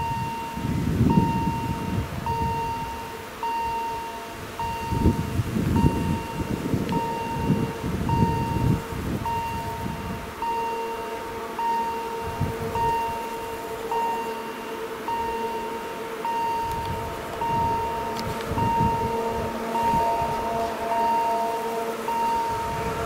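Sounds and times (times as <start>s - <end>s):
level crossing signal beeping: 0.0s - 23.0s
low rumble: 16.3s - 23.0s.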